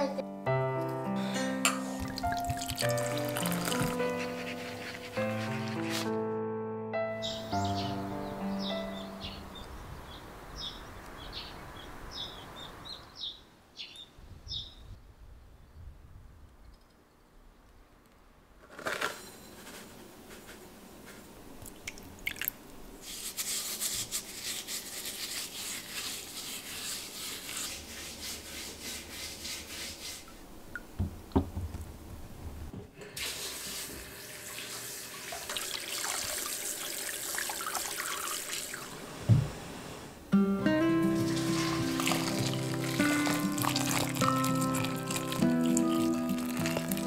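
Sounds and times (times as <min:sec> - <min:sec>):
watery rubbing hiss: 0:02.8 - 0:06.1, 0:33.2 - 0:35.4, 0:41.1 - 0:47.0.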